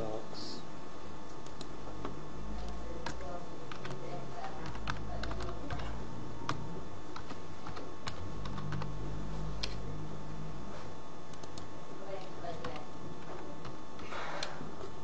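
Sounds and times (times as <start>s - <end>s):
keyboard typing clicks: 1.3s - 9.0s, 9.6s - 9.8s, 11.3s - 14.6s.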